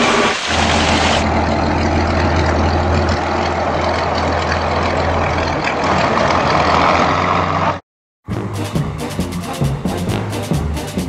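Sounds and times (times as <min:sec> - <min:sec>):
constant mechanical noise: 0:00.0 - 0:06.9
low engine hum: 0:00.0 - 0:10.6.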